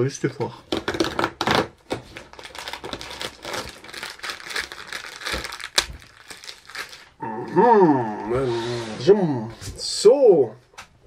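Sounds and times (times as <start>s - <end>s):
cardboard and plastic crinkling: 0.7s - 7.2s.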